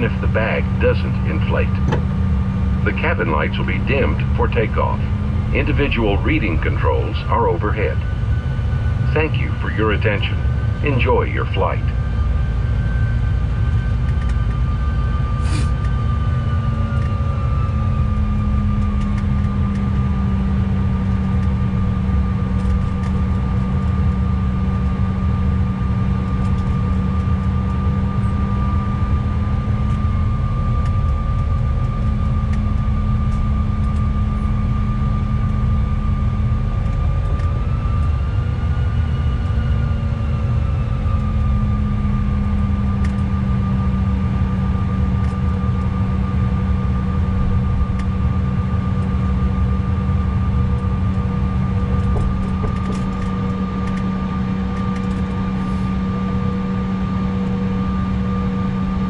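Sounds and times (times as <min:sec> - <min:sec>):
jet engines whining: 0:00.0 - 0:59.0.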